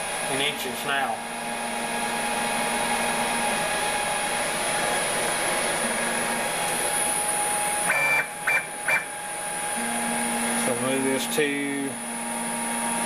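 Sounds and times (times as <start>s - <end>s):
machine whirring hum: 0.0s - 13.0s
stepper motor whine: 0.0s - 13.0s.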